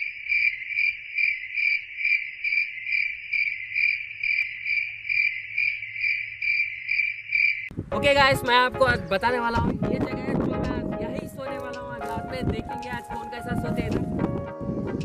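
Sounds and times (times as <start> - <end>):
cricket chirping: 0.0 - 7.7.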